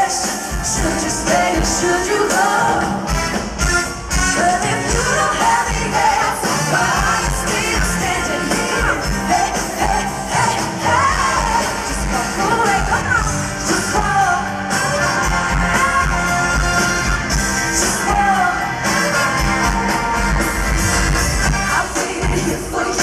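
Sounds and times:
woman singing: 0.0s - 3.0s, 4.3s - 14.6s
drums: 0.0s - 23.0s.

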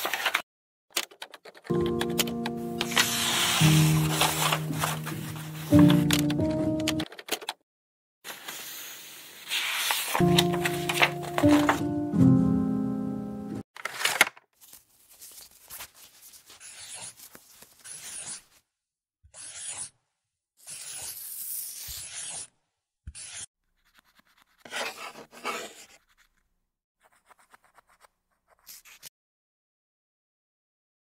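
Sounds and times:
pen scratching on paper: 16.5s - 18.4s, 19.3s - 19.9s, 20.6s - 22.5s, 23.1s - 26.4s, 27.0s - 29.1s.

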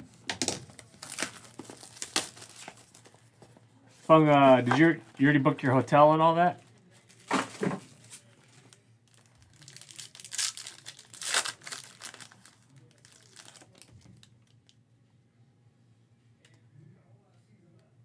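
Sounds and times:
foil wrapper crinkling and tearing: 0.4s - 3.2s, 8.6s - 14.6s.

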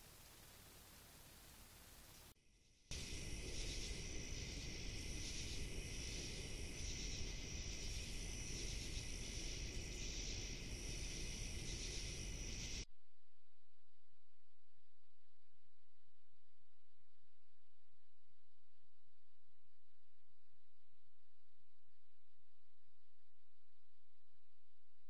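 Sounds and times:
crickets and katydids chirring: 2.9s - 12.8s.

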